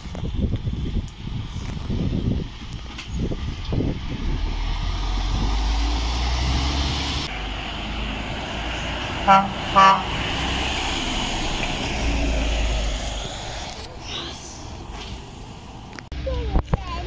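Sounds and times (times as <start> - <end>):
lorries driving past: 0.2 - 17.0
lorry horn toots: 9.2 - 10.2.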